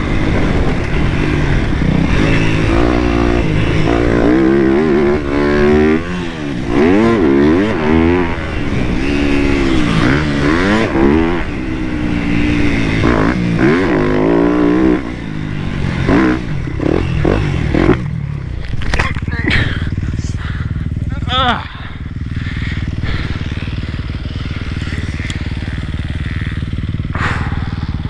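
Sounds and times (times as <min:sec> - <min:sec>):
motocross bike engine revving: 0:00.0 - 0:28.0.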